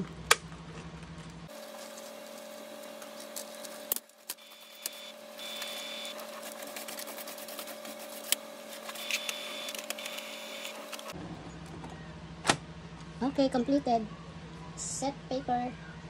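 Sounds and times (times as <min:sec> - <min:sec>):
printer mechanical hum and whines: 0:01.5 - 0:12.2.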